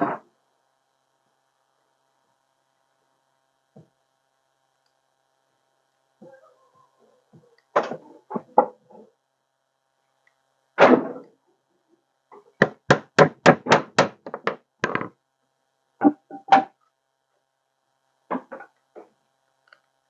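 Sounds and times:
hammer hitting nail into wood: 12.6s - 15.0s.

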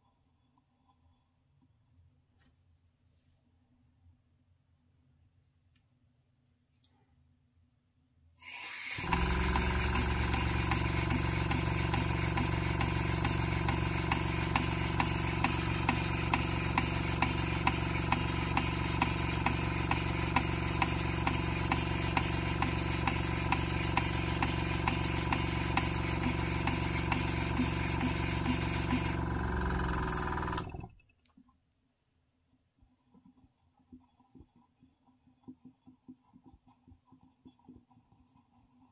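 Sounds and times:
model steam engine hissing: 8.4s - 29.4s.

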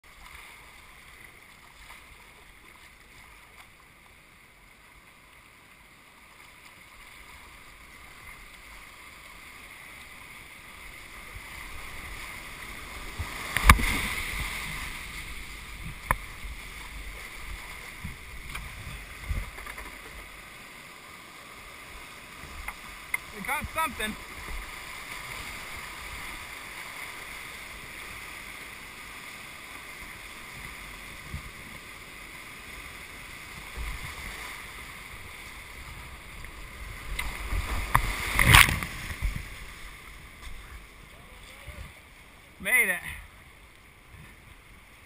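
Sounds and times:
whitewater rapids rushing: 7.3s - 43.4s
sharp knocks and splashes: 13.0s - 15.0s, 37.1s - 39.5s.

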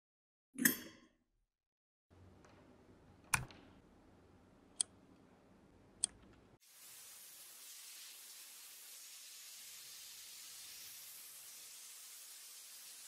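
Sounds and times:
faint hiss: 6.6s - 13.0s.

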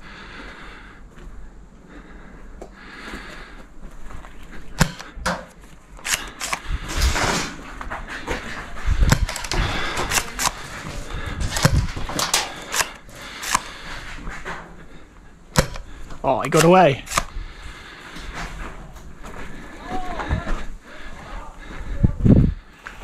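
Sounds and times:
sharp cracks and knocks: 4.8s - 7.6s, 9.0s - 13.9s, 15.6s - 17.4s.

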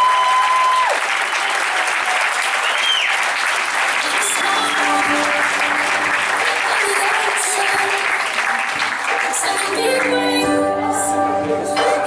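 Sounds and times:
audience applauding: 0.0s - 10.2s
high whistle: 2.6s - 3.2s.

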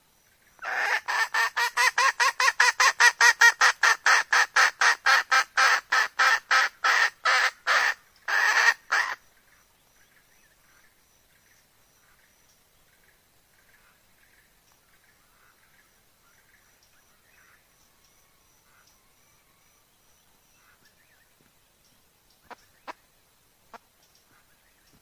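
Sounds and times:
hen cackling: 0.6s - 9.2s.

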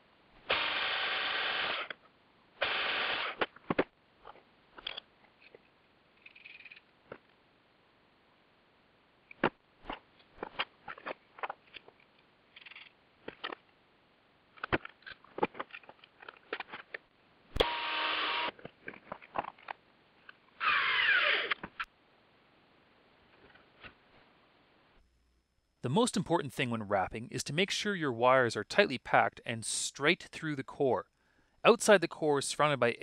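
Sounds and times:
small metal parts clicking: 4.8s - 6.9s, 10.5s - 13.6s.

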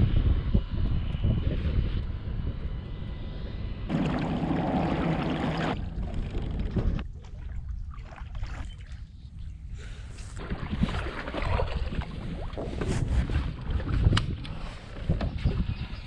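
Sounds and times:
wind rumble on microphone: 0.0s - 16.0s
kayak moving through water: 3.9s - 16.0s.

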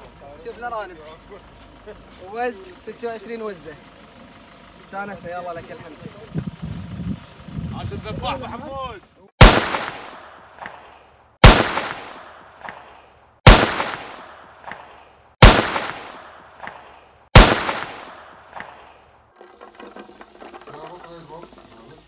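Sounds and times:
gunshot-like bangs: 9.4s - 19.0s.

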